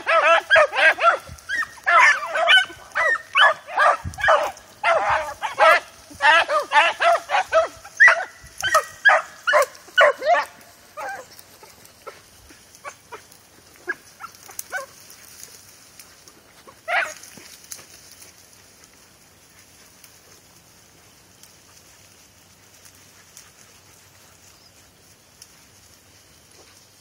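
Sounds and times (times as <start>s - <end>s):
hounds barking in short yelps: 0.0s - 15.0s, 16.6s - 17.5s.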